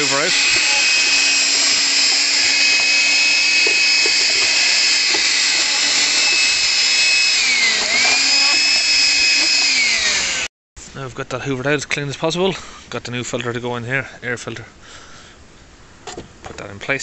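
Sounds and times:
handheld vacuum whining: 0:00.0 - 0:10.5.

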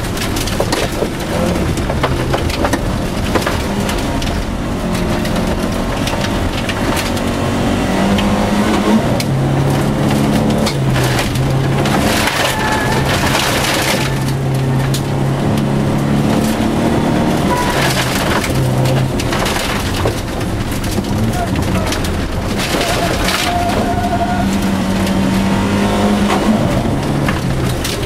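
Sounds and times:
gravel crunching under car: 0:00.0 - 0:28.0
rally car engine revving: 0:00.0 - 0:28.0.

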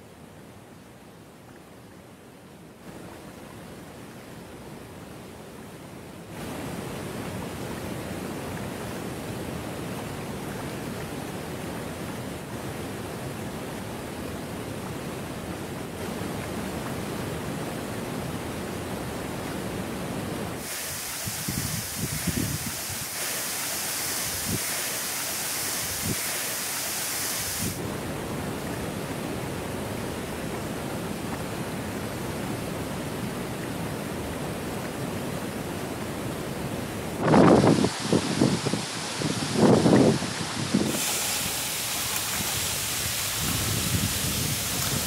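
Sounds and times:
small waterfall rushing: 0:00.0 - 0:45.0
wind buffeting microphone: 0:21.2 - 0:23.1, 0:37.2 - 0:45.0.

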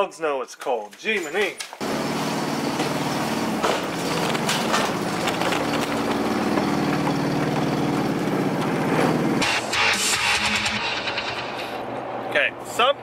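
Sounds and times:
atv engine running: 0:01.8 - 0:09.9.

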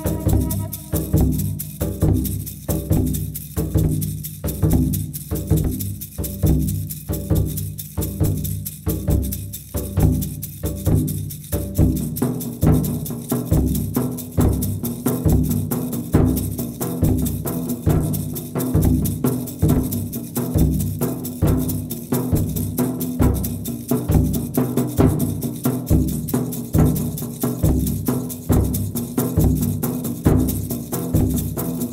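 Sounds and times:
held low tone: 0:00.0 - 0:01.6
low drum beat: 0:00.0 - 0:02.1.

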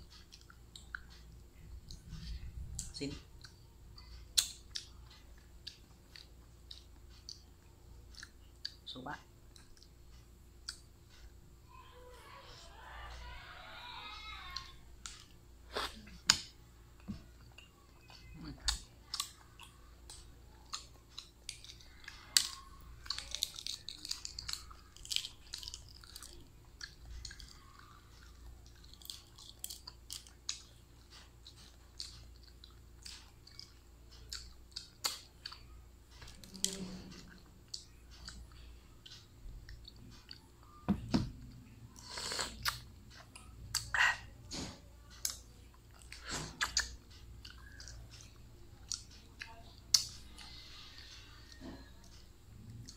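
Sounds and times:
eggshell crackling: 0:18.2 - 0:30.6
wet chewing and slurping: 0:42.0 - 0:42.9.

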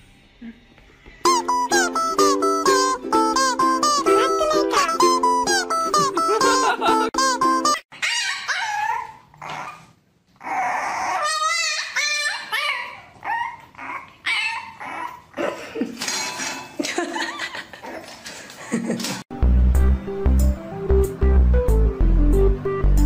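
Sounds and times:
plucked string music: 0:01.3 - 0:07.8
puppy whining and yipping: 0:07.7 - 0:15.4.

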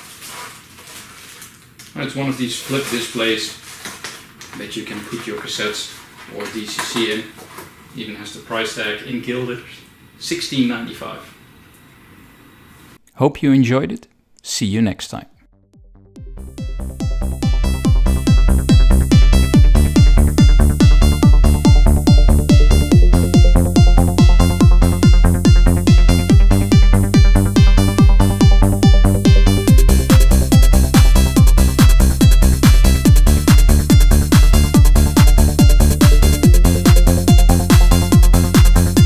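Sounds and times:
electronic dance music: 0:16.0 - 0:39.0.

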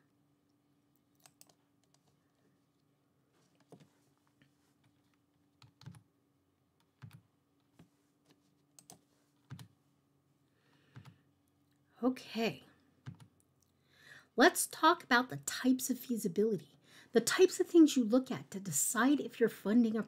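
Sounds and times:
low steady hum: 0:00.0 - 0:20.0
computer keys clicking: 0:01.1 - 0:02.1, 0:05.6 - 0:06.0, 0:06.8 - 0:07.2, 0:08.8 - 0:09.7, 0:13.1 - 0:13.4.

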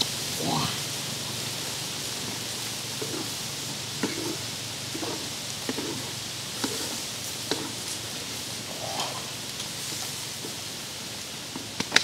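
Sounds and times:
grasshoppers frying in a wok: 0:00.0 - 0:12.0
wooden spatula scraping wok: 0:03.0 - 0:03.4, 0:04.0 - 0:08.0.

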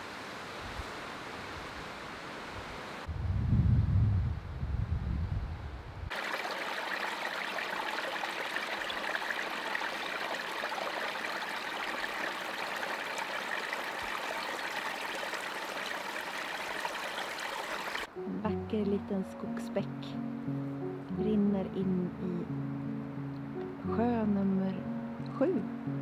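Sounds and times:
wind buffeting microphone: 0:03.1 - 0:06.1
brook trickling over stones: 0:06.1 - 0:18.1.

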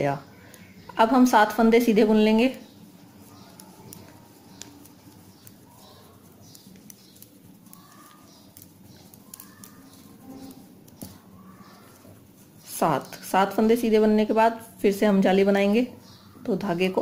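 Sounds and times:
birds calling faintly: 0:00.0 - 0:17.0
knitting needles clicking: 0:03.2 - 0:11.2.

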